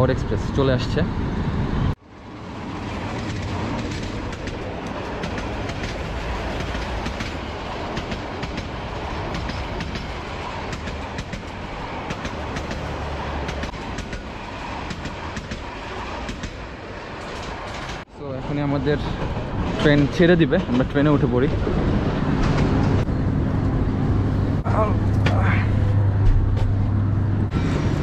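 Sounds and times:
train coaches rolling past: 0.0 - 24.6, 25.8 - 28.0
wheels clicking over rail joints: 2.9 - 18.1.

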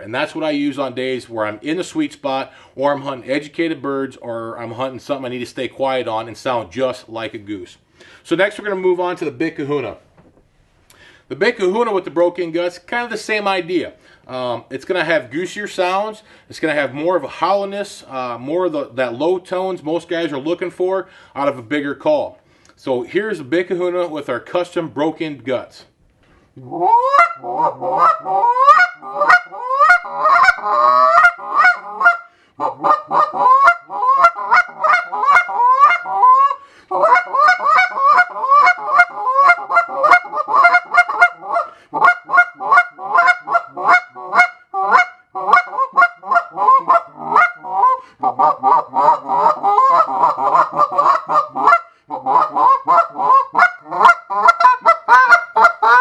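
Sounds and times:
goose call honks: 26.7 - 56.0.

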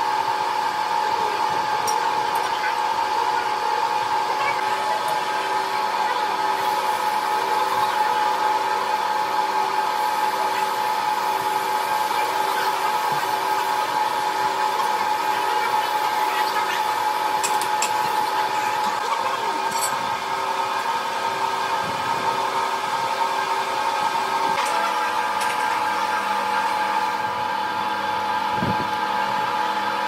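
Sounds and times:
metal lathe whirring hum: 0.0 - 30.0.

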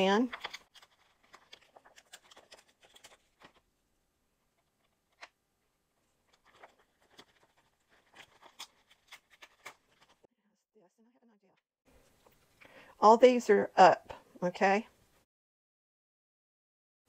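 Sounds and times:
paper and plastic crinkling: 0.2 - 3.7, 6.2 - 10.3.

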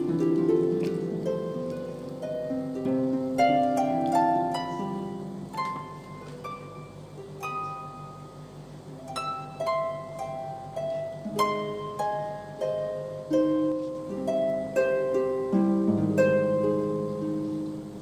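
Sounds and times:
light plucked melody: 0.0 - 18.0.

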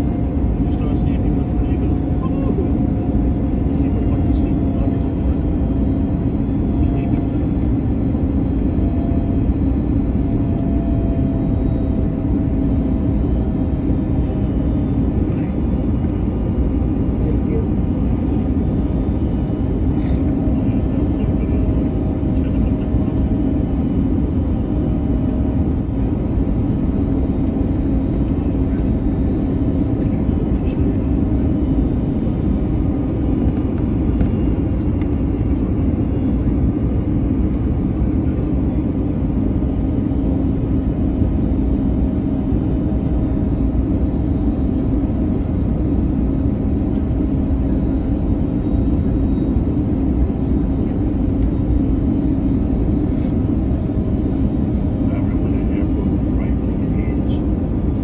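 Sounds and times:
airplane cabin roar: 0.0 - 58.0
steady low hum: 0.0 - 58.0.

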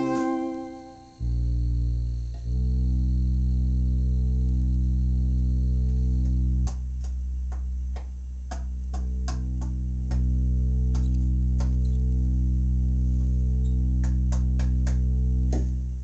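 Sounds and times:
organ playing chords and staccato notes: 0.0 - 3.2.

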